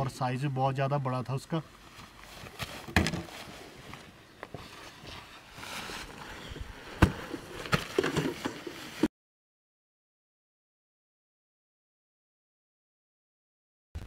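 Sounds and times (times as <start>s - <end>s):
tent fabric rustling: 1.7s - 9.1s.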